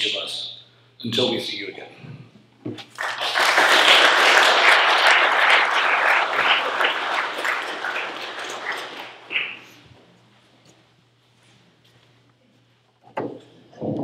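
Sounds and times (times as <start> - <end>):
audience applauding: 2.9 - 9.9.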